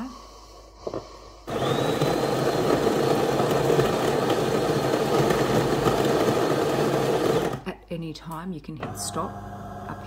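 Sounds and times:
coffee grinder grinding beans: 1.5s - 7.7s, 8.8s - 10.0s.

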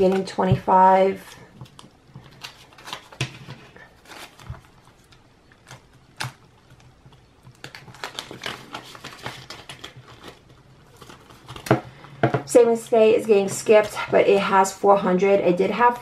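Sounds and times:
plastic envelope crinkling: 1.5s - 12.1s
banknotes rustling: 1.6s - 12.1s.

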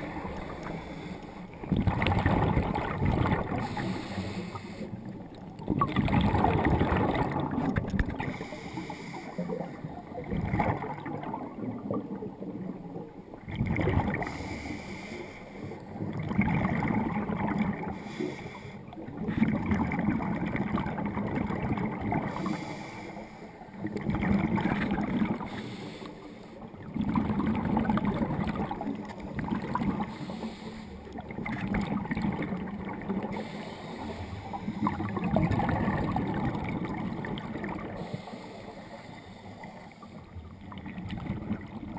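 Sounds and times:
scuba regulator breathing underwater: 0.0s - 2.6s, 3.4s - 5.2s, 8.2s - 9.9s, 14.1s - 16.0s, 17.8s - 19.4s, 22.1s - 23.8s, 25.1s - 26.7s, 29.6s - 31.2s, 32.6s - 36.2s, 37.6s - 40.5s
gurgling exhaled bubbles: 0.0s - 15.0s, 15.7s - 18.3s, 18.9s - 23.0s, 23.6s - 26.0s, 26.6s - 41.9s.

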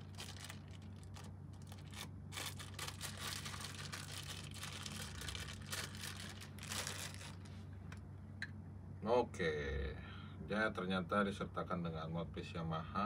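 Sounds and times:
plastic wrapping crinkling: 0.0s - 8.0s
faint steady low hum: 0.0s - 13.0s.

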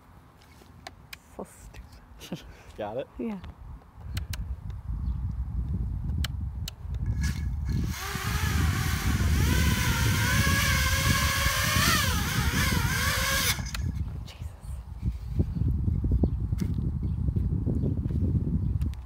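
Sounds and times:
quadcopter motors whining: 7.2s - 13.8s.

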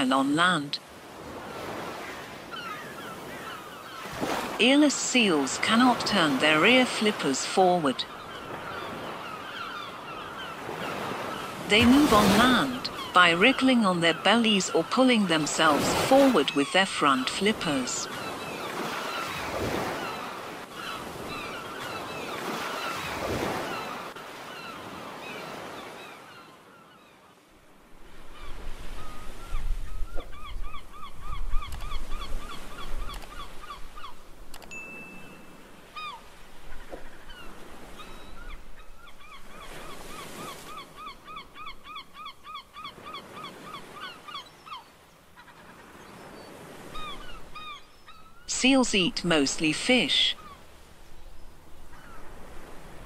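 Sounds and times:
surf washing: 0.0s - 26.4s, 48.5s - 53.0s
gulls calling: 0.0s - 53.0s.

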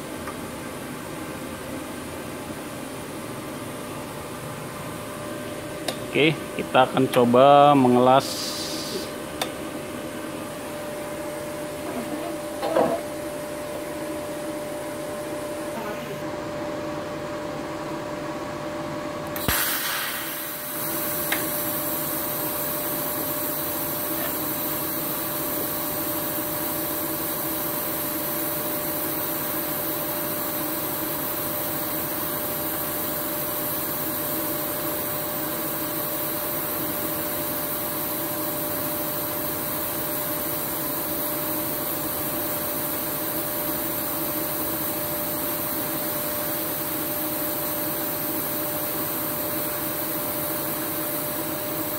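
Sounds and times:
steady hum: 0.0s - 51.9s
welding arc crack and hiss: 5.8s - 9.5s, 19.3s - 51.9s.

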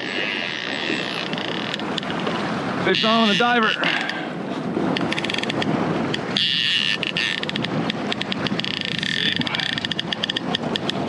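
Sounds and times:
fishing reel drag buzzing: 0.0s - 2.2s, 6.3s - 7.7s
outboard motor running: 0.0s - 11.0s.

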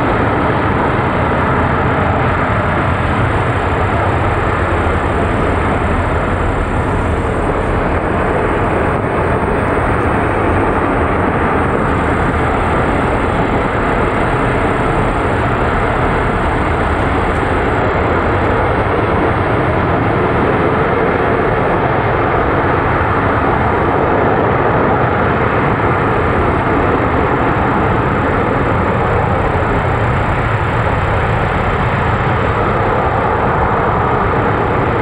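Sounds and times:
rocket engine firing: 0.0s - 24.0s.

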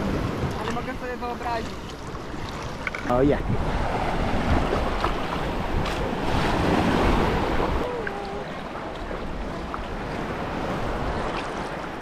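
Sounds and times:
small waves breaking: 0.0s - 12.0s
person wading splashing: 1.6s - 2.8s, 4.3s - 12.0s
wind on microphone: 2.4s - 12.0s.

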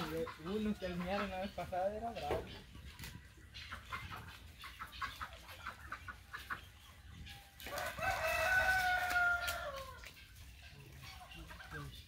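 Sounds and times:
rooster crowing: 7.7s - 10.0s.

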